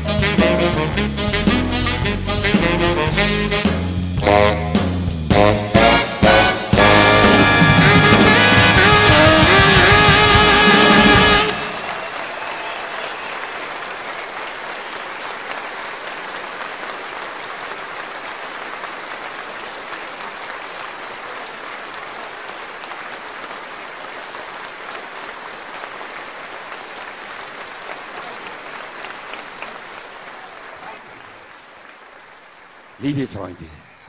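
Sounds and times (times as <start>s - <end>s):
brass chord: 0.0s - 12.0s
audience applause: 6.3s - 34.0s.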